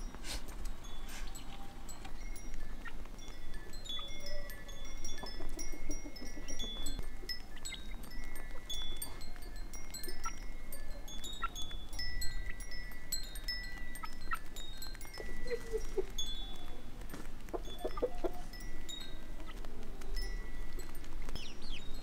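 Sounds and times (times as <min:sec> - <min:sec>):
wind chimes ringing: 0:00.0 - 0:22.0
hens clucking: 0:05.2 - 0:07.0, 0:15.2 - 0:16.2, 0:17.5 - 0:18.5.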